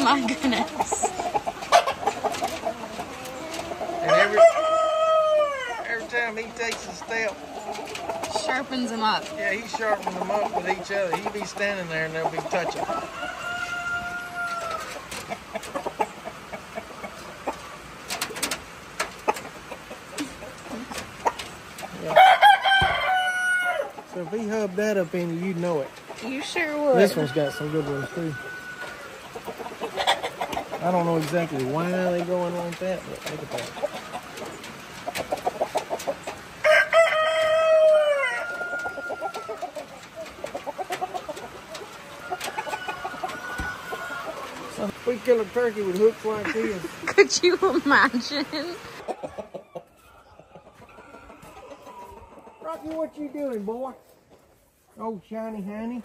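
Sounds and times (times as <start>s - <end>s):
roosters crowing: 0.0s - 53.7s
hens clucking: 0.0s - 56.0s
rooster crowing: 4.0s - 5.9s, 12.8s - 15.1s, 22.1s - 24.0s, 26.9s - 29.2s, 36.6s - 39.8s, 42.0s - 44.7s.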